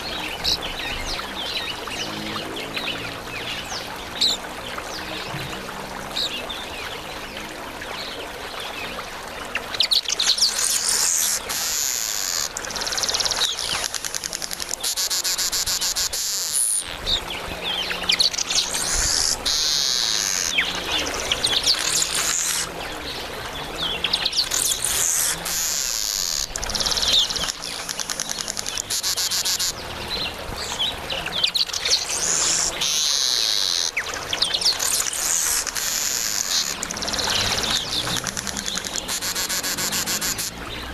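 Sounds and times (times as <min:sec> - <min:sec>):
weaver birds chattering: 0:09.8 - 0:23.2, 0:23.8 - 0:40.9.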